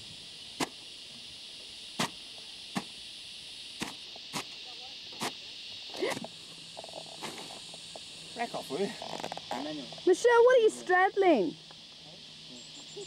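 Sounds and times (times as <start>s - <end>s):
high drone of insects: 0.0s - 13.0s.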